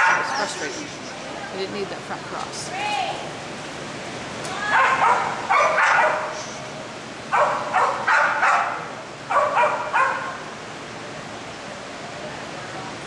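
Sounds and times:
dog barking excitedly: 0.0s - 0.4s, 4.6s - 6.5s, 7.3s - 10.4s.

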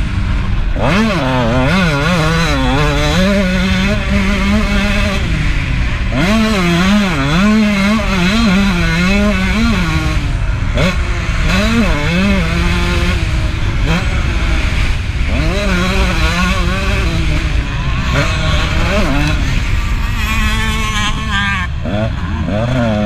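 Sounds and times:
two-stroke motorcycle engine revving: 0.0s - 23.0s.

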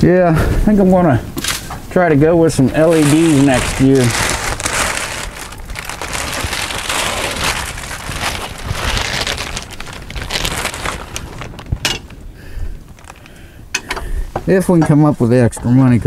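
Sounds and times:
plastic tarp crinkling: 2.5s - 13.4s.

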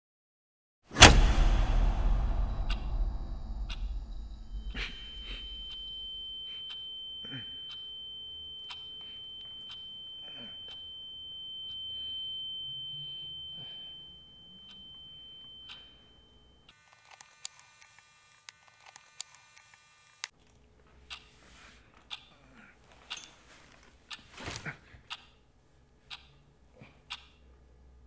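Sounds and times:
soft muffled low sounds: 1.0s - 6.4s
high-pitched ringing sine tone: 1.2s - 17.0s.

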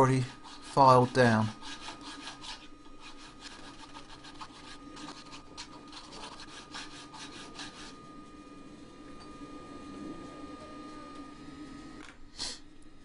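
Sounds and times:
file rasping on steel: 0.3s - 8.0s.

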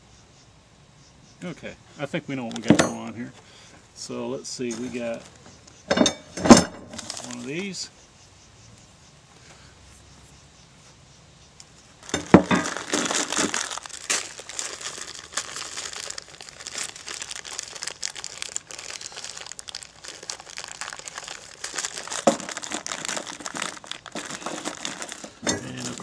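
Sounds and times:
plastic bag crinkling: 6.9s - 7.6s, 12.0s - 26.0s.

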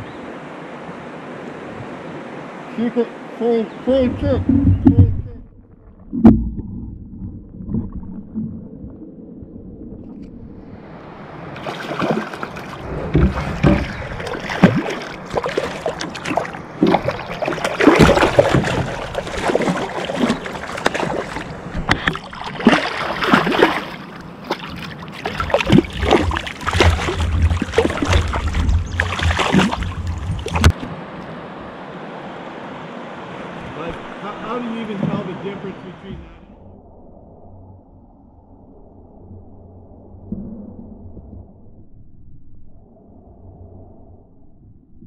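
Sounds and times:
water sloshing against microphone: 3.8s - 31.5s
fish thrashing and splashing: 11.6s - 30.8s.

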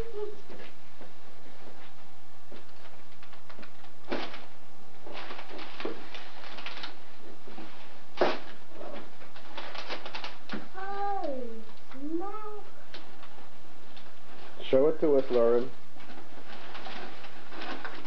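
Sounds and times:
paper crinkling and rustling: 1.4s - 10.7s, 12.9s - 18.0s.

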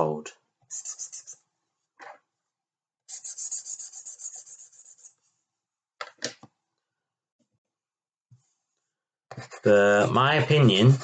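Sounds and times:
pen scratches: 0.7s - 1.4s, 3.1s - 5.2s, 9.3s - 11.0s
marker pen scribbling on paper: 0.7s - 1.5s, 3.1s - 5.3s, 9.3s - 11.0s.

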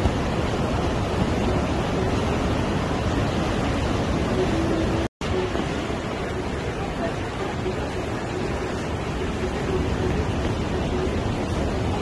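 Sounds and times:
waves breaking over rocks: 0.0s - 12.0s.

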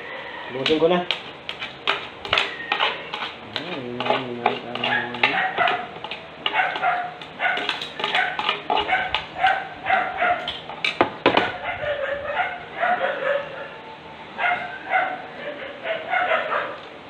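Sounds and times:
dog barking: 4.8s - 5.9s, 6.5s - 10.5s, 11.4s - 13.8s, 14.4s - 16.8s.

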